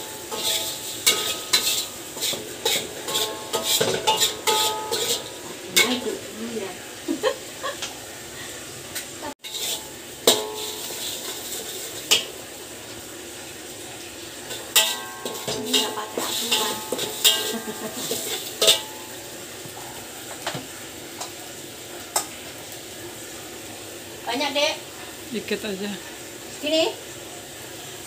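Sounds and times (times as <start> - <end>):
metal spatula scraping a wok: 0.0 - 6.2, 9.4 - 12.4, 14.4 - 19.2.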